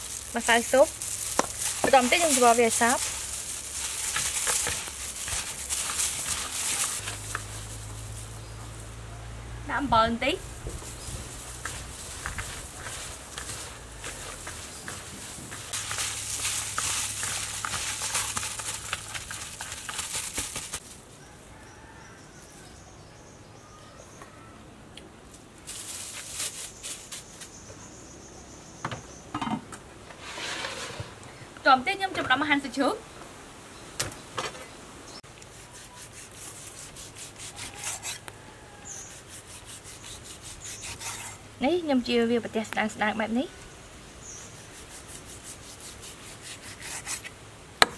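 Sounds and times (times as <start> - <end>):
wet food squelching in a bowl: 11.2 - 20.8
faint bird chirps: 21.2 - 24.7
cleaver sawing through meat: 35.5 - 38.3, 39.0 - 41.4, 44.6 - 47.3.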